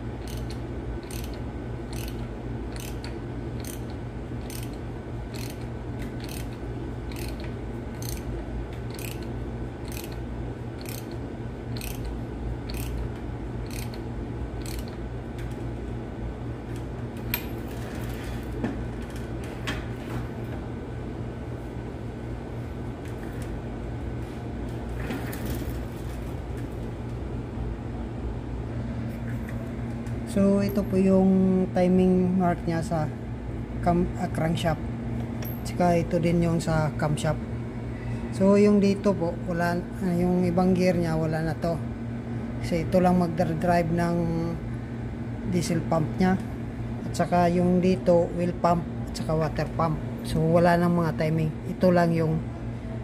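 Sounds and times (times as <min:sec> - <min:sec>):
ratchet wrench clicking: 0:00.2 - 0:08.3, 0:08.9 - 0:10.2, 0:10.8 - 0:11.2, 0:11.8 - 0:13.0, 0:13.6 - 0:14.0, 0:14.6 - 0:15.0.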